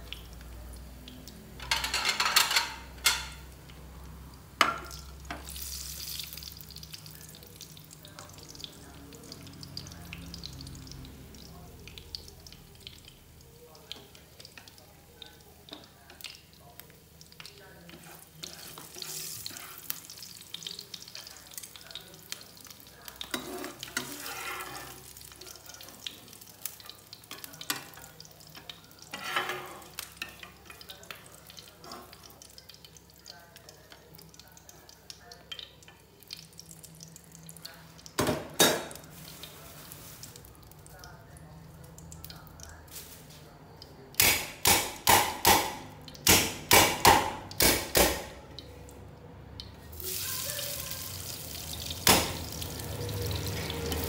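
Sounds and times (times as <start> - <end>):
potatoes sizzling in hot oil: 0.0 - 38.2, 38.8 - 48.2, 49.8 - 54.0
metal spatula stirring in pan: 17.4 - 26.1, 26.7 - 31.2.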